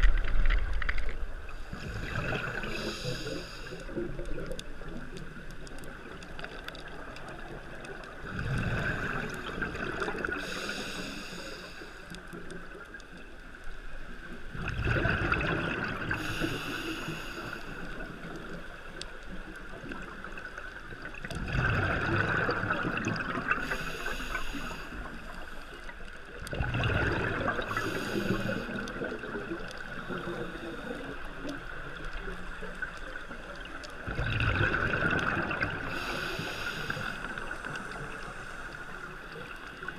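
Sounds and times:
hissing inhale through regulator: 1.5s - 4.5s, 8.3s - 12.8s, 15.9s - 18.5s, 23.4s - 26.0s, 27.4s - 32.2s, 35.0s - 39.9s
bubbling exhale underwater: 1.7s - 4.6s, 8.0s - 11.0s, 14.5s - 18.1s, 21.2s - 24.8s, 26.5s - 31.2s, 34.0s - 38.3s.

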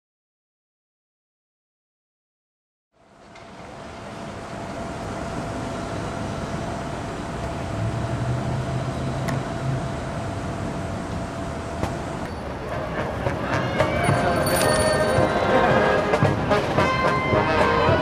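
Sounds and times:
traffic rumble: 3.0s - 17.7s
deep engine hum: 4.4s - 16.6s.

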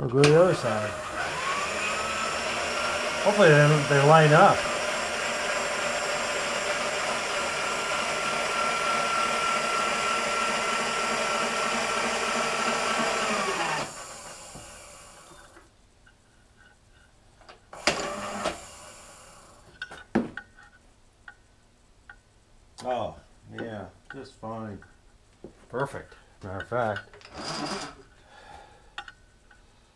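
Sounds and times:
electric machine whining: 0.0s - 15.6s, 17.7s - 19.7s.

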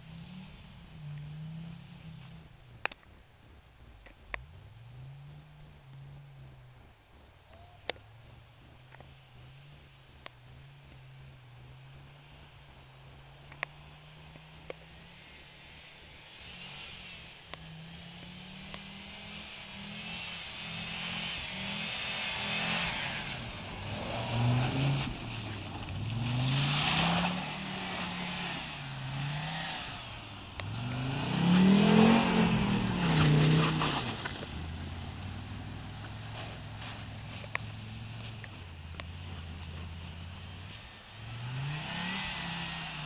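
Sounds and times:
car engine revving: 0.0s - 3.0s, 4.1s - 6.8s, 7.9s - 43.0s
tyres spinning in snow: 14.8s - 43.0s.

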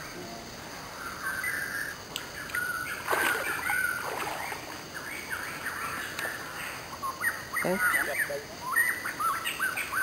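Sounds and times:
fish splashing in shallow water: 2.6s - 5.0s.

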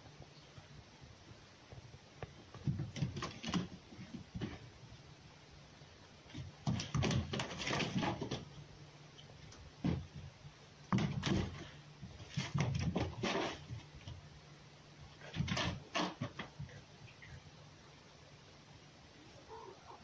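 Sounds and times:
fox scuffling and knocking: 2.2s - 5.0s, 6.2s - 14.3s, 15.1s - 16.9s.

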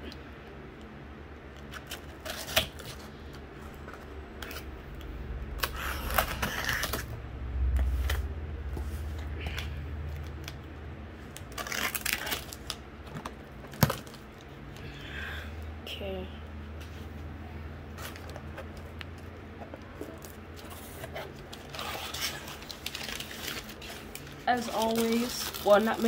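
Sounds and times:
packing tape ripping: 1.5s - 3.0s, 5.5s - 7.1s, 11.3s - 14.4s, 21.1s - 26.0s.

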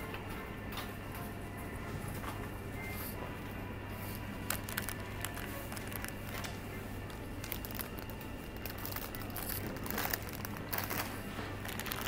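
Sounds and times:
steady low hum: 0.0s - 12.0s
plastic bags crinkling: 4.4s - 12.0s.

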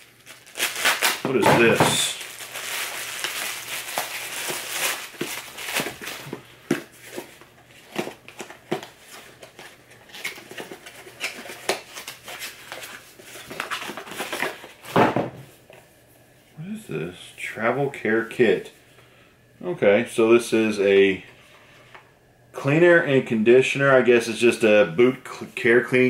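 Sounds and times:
plastic bag crinkling: 0.0s - 14.8s.

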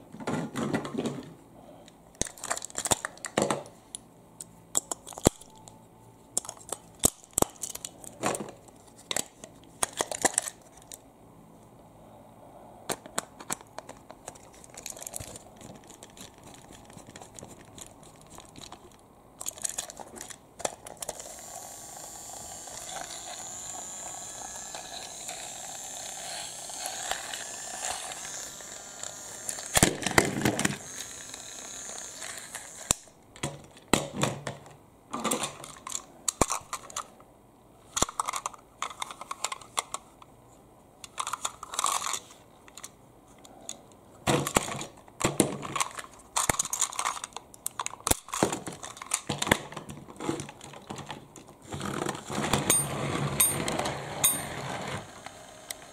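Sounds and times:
loud plastic clatter: 0.1s - 1.4s, 29.7s - 30.9s, 44.2s - 55.3s
toy clicks and rattles: 12.9s - 33.0s, 38.0s - 40.0s, 41.0s - 43.0s, 45.7s - 49.7s
toy train motor whirring: 19.4s - 33.1s, 41.2s - 42.9s, 51.7s - 55.9s.

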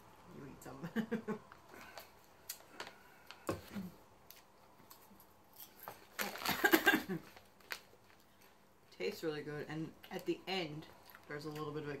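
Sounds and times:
soft clicks and crunches: 1.5s - 8.6s
plastic snack bag crinkling: 5.6s - 8.6s.

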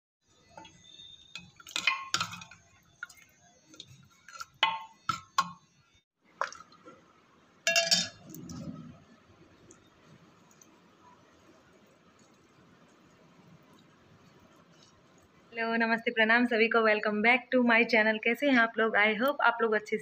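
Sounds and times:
metal ladle scraping cooking pot: 0.6s - 5.6s.

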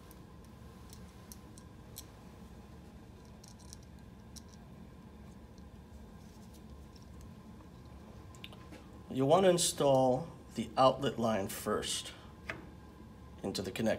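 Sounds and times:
low room hum: 0.0s - 13.9s.

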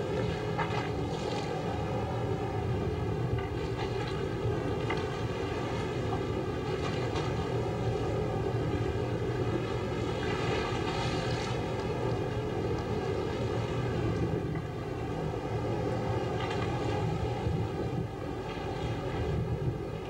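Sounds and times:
boat engine droning: 0.0s - 20.0s
wind and waves rumble: 0.0s - 20.0s.

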